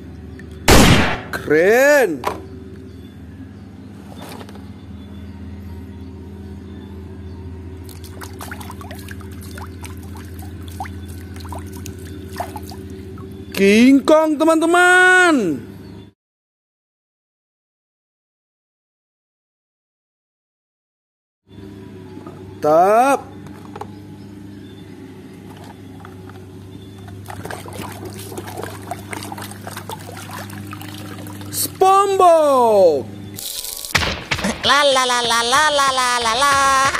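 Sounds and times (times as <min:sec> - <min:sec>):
low hum: 0:00.0 - 0:14.7, 0:23.2 - 0:36.9
water splashing in a plastic basin: 0:07.8 - 0:12.9, 0:27.2 - 0:31.7.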